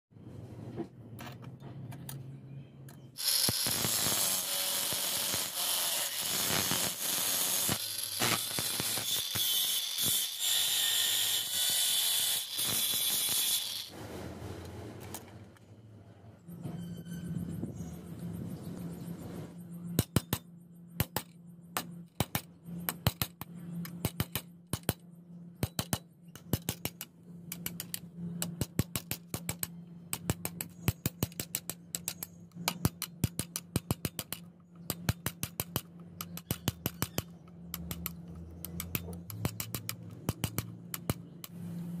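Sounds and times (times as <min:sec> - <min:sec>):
steady low hum: 0:13.9 - 0:42.0.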